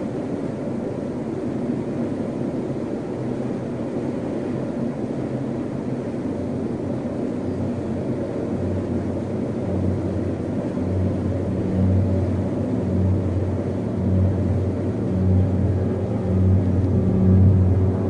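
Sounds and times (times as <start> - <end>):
low hum: 6.4 - 18.0.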